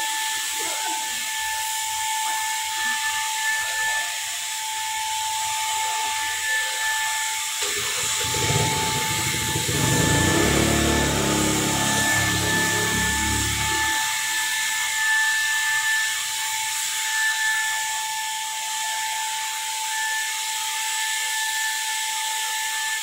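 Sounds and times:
paint spray gun whine: 0.0s - 17.0s.

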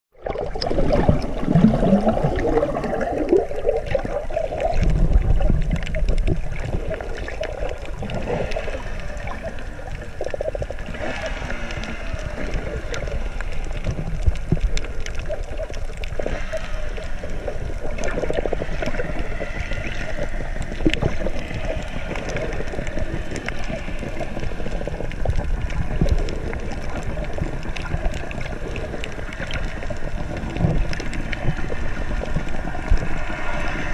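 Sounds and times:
muffled underwater wash: 0.1s - 33.9s
small crackles and clicks: 0.2s - 33.9s
low rumbling swells: 0.4s - 15.0s.

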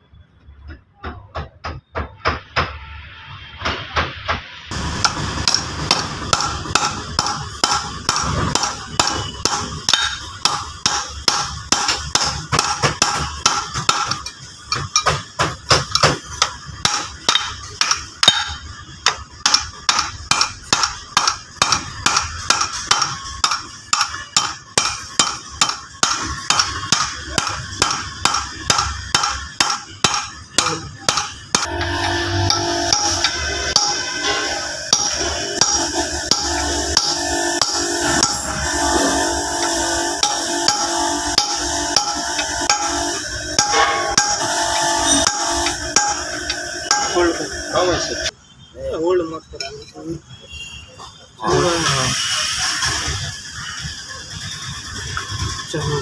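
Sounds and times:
hammer tapping on metal: 5.0s - 38.5s, 40.2s - 47.4s.

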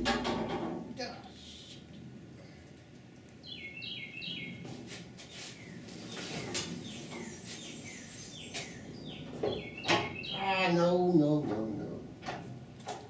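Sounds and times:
sheet metal clanking: 0.0s - 0.9s.

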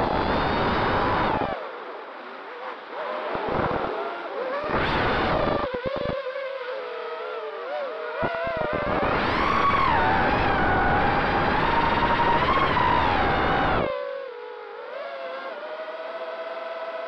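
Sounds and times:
drone motors whining: 0.0s - 1.7s, 2.6s - 17.0s.

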